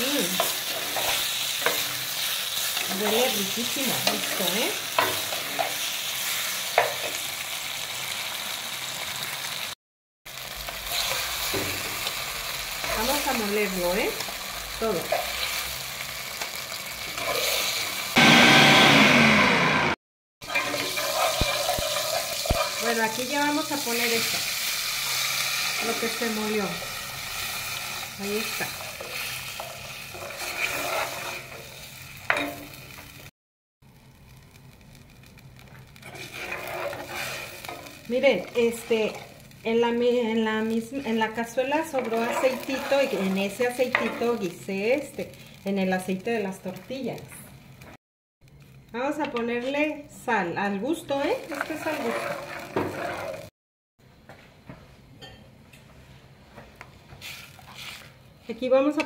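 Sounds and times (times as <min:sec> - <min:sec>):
vegetables sizzling in hot oil: 0:00.0 - 0:19.4, 0:20.4 - 0:33.3, 0:33.9 - 0:48.0, 0:48.6 - 0:53.5, 0:57.2 - 0:59.0
plastic spoon stirring: 0:51.5 - 0:53.4.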